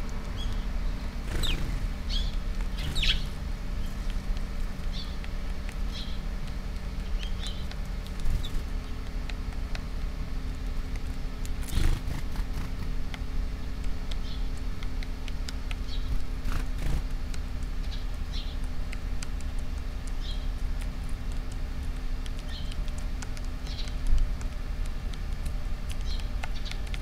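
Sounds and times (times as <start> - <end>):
birds pecking clicks: 0.0 - 27.0
sparrow chirps: 0.3 - 4.2, 4.8 - 5.3, 5.9 - 8.7, 14.2 - 14.5, 15.8 - 17.0, 17.8 - 18.7, 20.2 - 20.6, 22.4 - 22.9, 23.6 - 24.1, 26.0 - 26.9.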